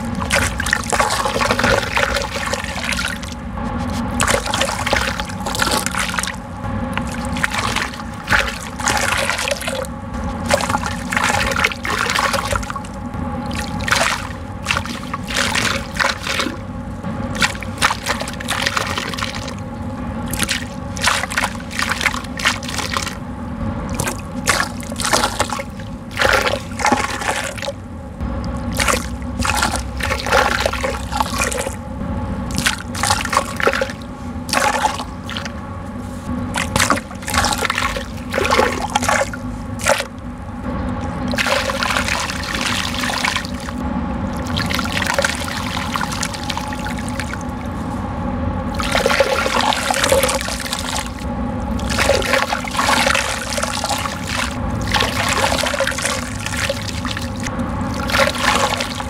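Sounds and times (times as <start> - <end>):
dirt pouring into water: 0.0 - 3.4, 4.1 - 6.4, 7.0 - 16.6, 17.4 - 19.6, 24.0 - 27.8, 28.7 - 31.8, 32.5 - 35.5, 36.6 - 40.1, 41.3 - 43.8, 48.7 - 59.0.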